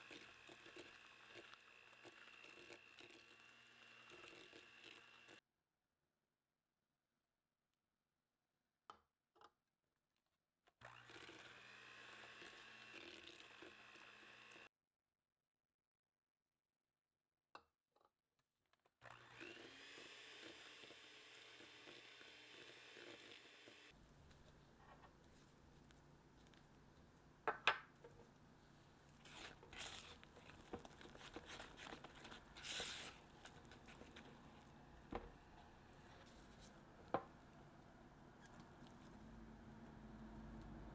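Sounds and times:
electric hand mixer whine: 0.0s - 5.4s, 10.8s - 14.7s, 19.0s - 24.0s, 29.2s - 35.9s
spatula scraping dough in bowl: 29.2s - 34.6s.

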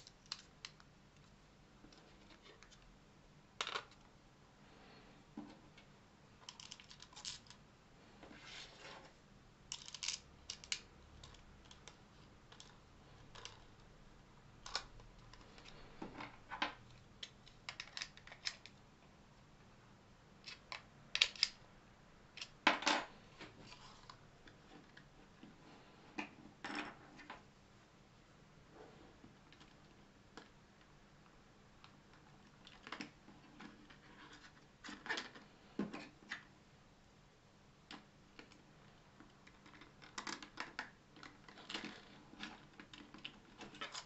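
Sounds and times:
plastic parts clicking and tapping: 6.4s - 7.6s, 9.7s - 13.8s, 14.6s - 18.8s, 20.4s - 21.6s.

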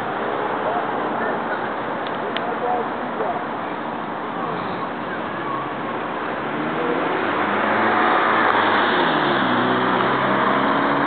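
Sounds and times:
car driving past: 6.4s - 11.0s.

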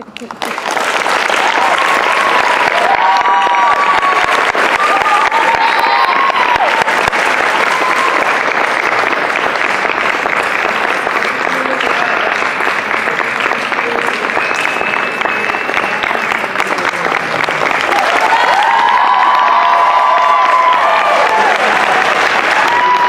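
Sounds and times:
audience applauding: 0.0s - 23.0s
audience cheering: 1.0s - 23.0s.

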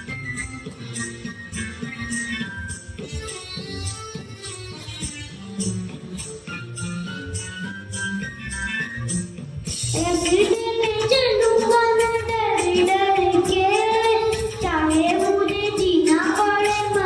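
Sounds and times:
child singing into a microphone: 10.0s - 17.0s.

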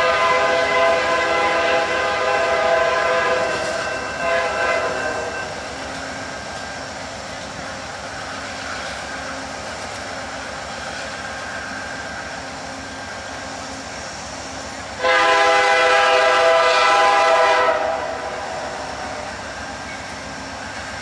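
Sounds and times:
train air horn blast: 0.0s - 5.6s, 15.0s - 19.4s
diesel locomotive running: 0.0s - 21.0s.

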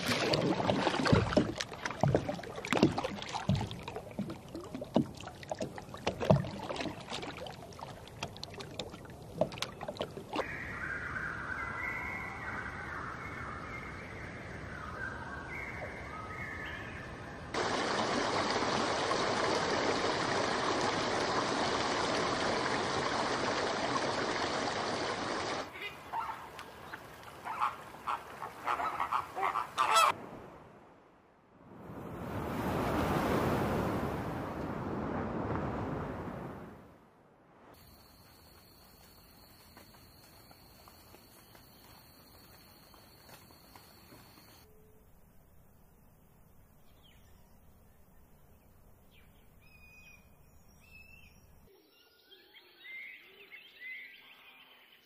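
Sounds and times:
waves breaking on beach: 0.0s - 3.5s, 31.6s - 37.0s
flamingos honking: 25.6s - 30.2s.

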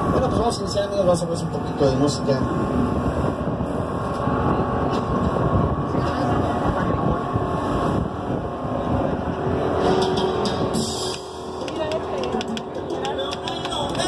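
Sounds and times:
boat engine running: 0.0s - 14.0s
wind buffeting microphone: 0.0s - 14.0s.

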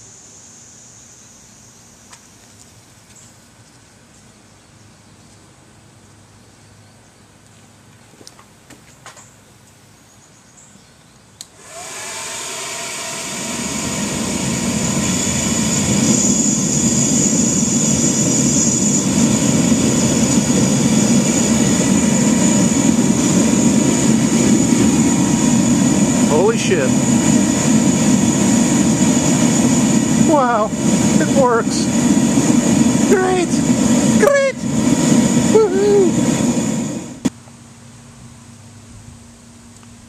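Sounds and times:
blower motor whining: 11.4s - 37.3s
burner roar: 11.6s - 37.3s.

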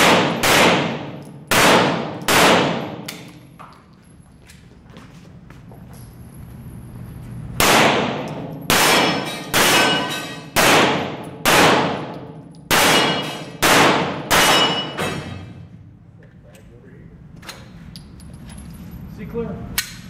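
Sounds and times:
echoing handgun shots: 0.0s - 3.1s, 7.6s - 15.4s.

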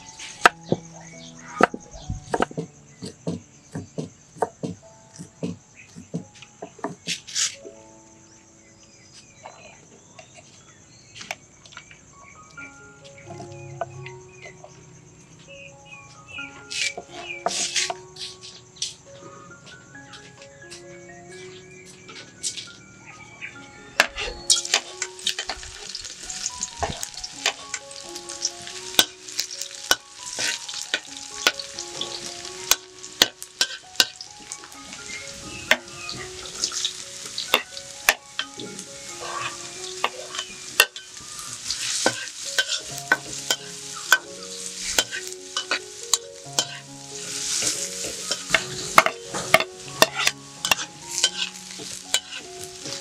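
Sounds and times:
food sizzling in a pan: 0.0s - 3.8s, 16.7s - 18.0s, 24.0s - 53.0s
utensil clacking against pan: 47.6s - 53.0s.

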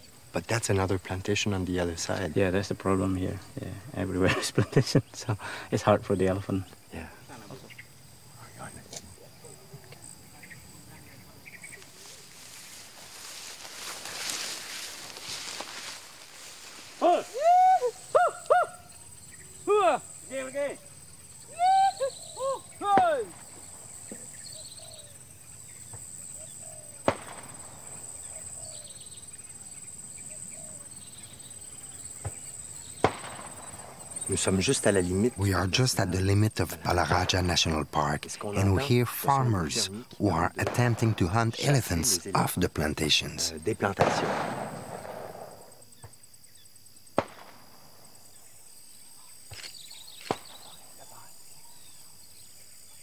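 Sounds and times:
high insect drone: 0.0s - 53.0s
bird calls: 2.0s - 40.3s, 48.3s - 53.0s
firecrackers banging: 27.0s - 28.0s, 33.0s - 34.3s, 40.6s - 42.2s, 43.8s - 45.8s
distant sharp bangs: 27.0s - 28.4s, 32.2s - 34.6s, 43.8s - 46.2s, 47.1s - 48.2s.

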